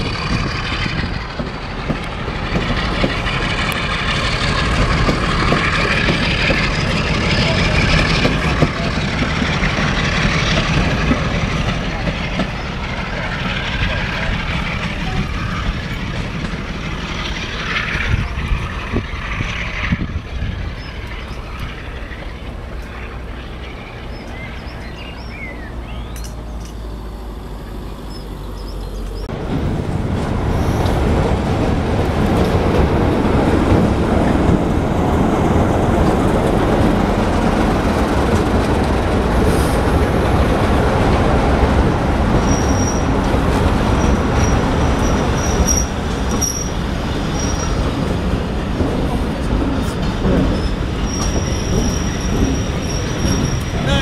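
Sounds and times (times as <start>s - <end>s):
diesel locomotive engine passing: 0.0s - 54.0s
train coaches rumbling: 0.0s - 54.0s
birds singing: 20.6s - 29.3s
high wheel squeal: 42.4s - 48.1s, 49.9s - 54.0s.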